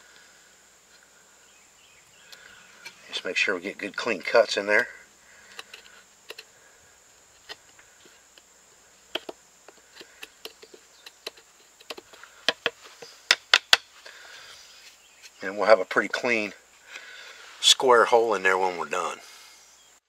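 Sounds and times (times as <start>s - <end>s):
knife cutting wood: 7.3s - 14.2s.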